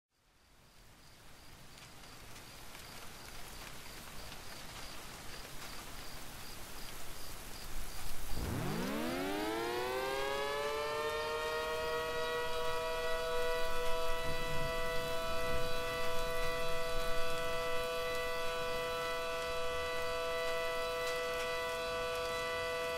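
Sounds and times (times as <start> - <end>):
siren winding up: 8.4 - 22.9.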